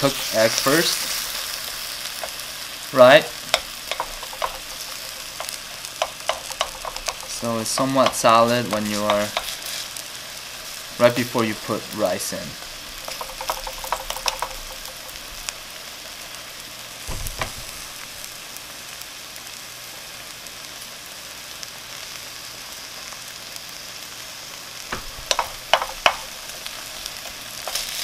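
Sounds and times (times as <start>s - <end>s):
spatula knocking and scraping pan: 0.0s - 9.8s, 12.9s - 15.4s, 24.9s - 28.0s
eggs and vegetables sizzling: 0.0s - 28.0s.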